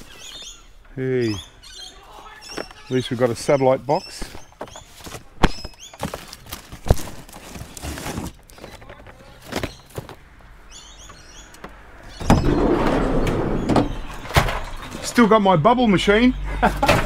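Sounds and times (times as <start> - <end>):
rustling: 2.0 - 10.3
junk knocking and clattering: 11.6 - 15.1, 16.7 - 17.0.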